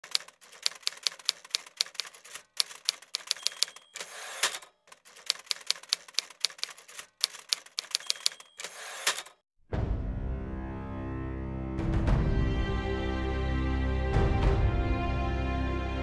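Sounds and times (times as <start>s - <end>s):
typewriter carriage return clunk: 0.0s - 9.4s
typewriter keys clacking: 0.0s - 9.4s
typewriter bell ding: 2.7s - 4.6s, 7.2s - 9.4s.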